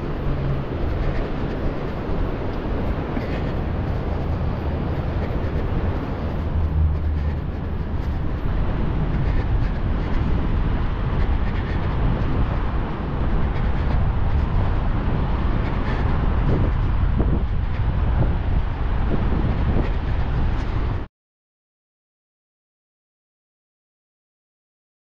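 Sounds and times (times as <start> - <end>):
low outdoor rumble: 0.0 - 21.1.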